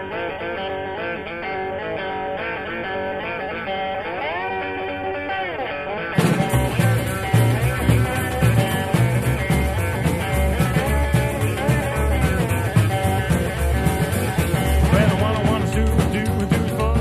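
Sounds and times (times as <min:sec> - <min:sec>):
guitar: 0:00.0 - 0:17.0
bass: 0:06.2 - 0:17.0
steady drum beat: 0:06.2 - 0:17.0.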